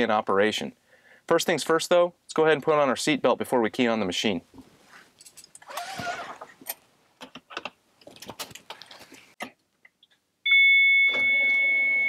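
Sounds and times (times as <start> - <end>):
seat belt sliding out: 5.6 - 6.5.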